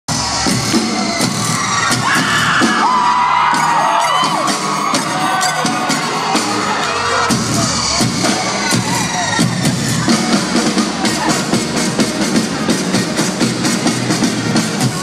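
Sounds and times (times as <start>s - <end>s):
drums playing: 0.1s - 15.0s
crowd cheering and whooping: 1.2s - 9.6s.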